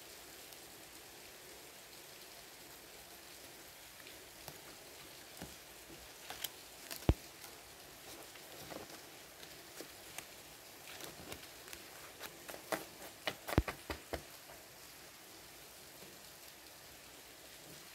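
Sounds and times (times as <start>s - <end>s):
cards flicking and tapping: 5.3s - 14.6s.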